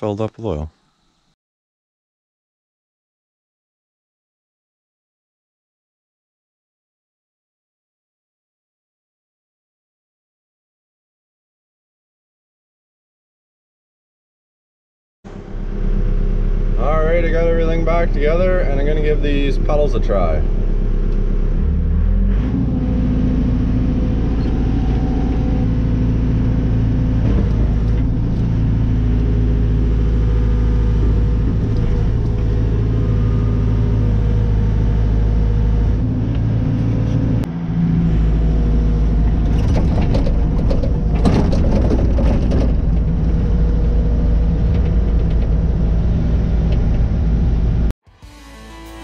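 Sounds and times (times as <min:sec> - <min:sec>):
diesel engine running under load: 0:15.3 - 0:47.9
rattling and clanking: 0:39.2 - 0:45.8.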